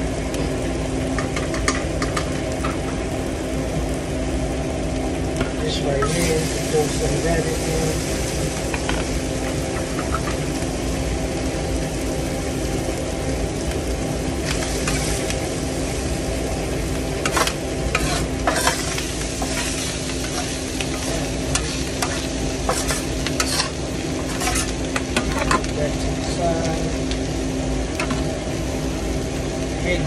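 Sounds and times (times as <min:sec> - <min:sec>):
food sizzling on griddle: 0:00.0 - 0:30.0
metal spatula scraping griddle: 0:17.2 - 0:25.6.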